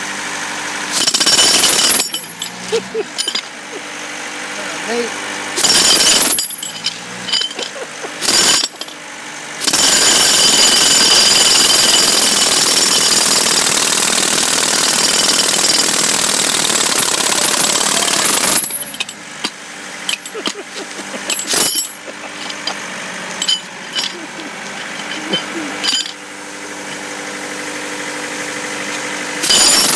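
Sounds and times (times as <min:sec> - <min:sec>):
jackhammer breaking concrete: 0:00.9 - 0:03.5, 0:05.6 - 0:09.0, 0:09.6 - 0:26.2, 0:29.4 - 0:29.9.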